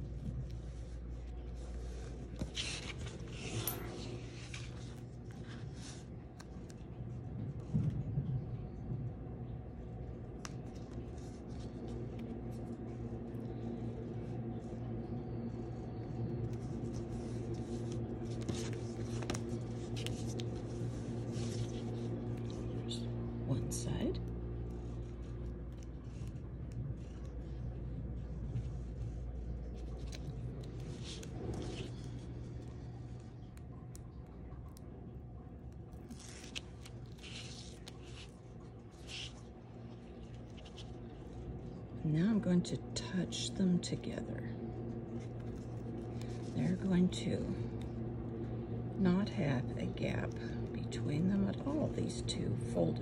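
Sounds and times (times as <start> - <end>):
hands rustling folding a strap: 0.0 - 7.7, 10.0 - 23.1, 24.3 - 34.1, 35.6 - 41.8, 45.1 - 46.6
steady low hum: 0.0 - 53.0.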